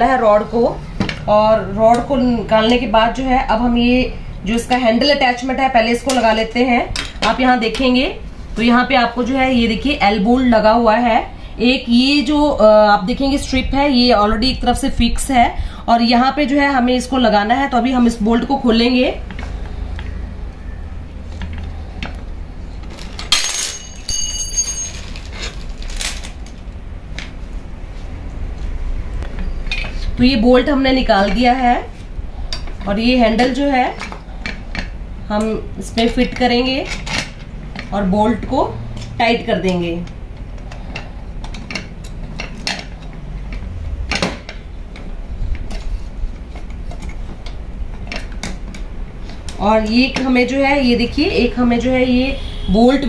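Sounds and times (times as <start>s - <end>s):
ringing metal clink: 23.3s - 25.1s.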